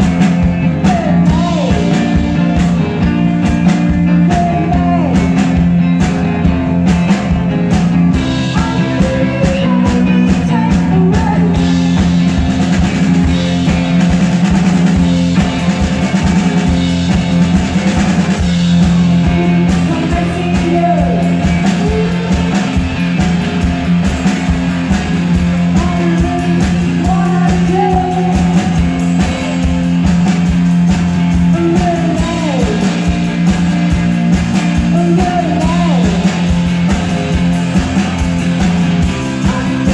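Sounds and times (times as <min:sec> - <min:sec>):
drum kit beat: 0:00.0 - 0:39.9
electric guitar: 0:00.0 - 0:39.9
woman singing: 0:04.1 - 0:05.3, 0:08.5 - 0:12.0, 0:19.3 - 0:22.8, 0:25.7 - 0:29.9, 0:31.5 - 0:33.0, 0:34.9 - 0:36.2, 0:39.3 - 0:39.9.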